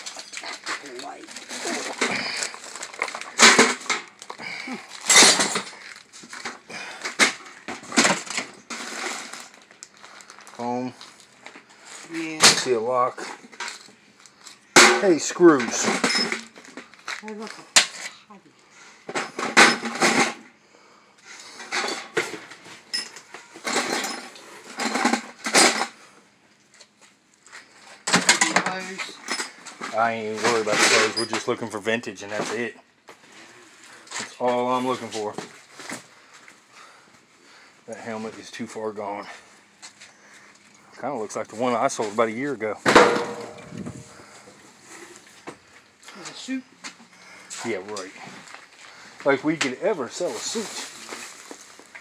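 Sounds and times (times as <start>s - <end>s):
junk rustling and clattering: 0.0s - 14.0s, 14.8s - 17.2s, 19.0s - 20.5s, 21.4s - 26.1s, 27.2s - 31.6s, 41.9s - 46.0s.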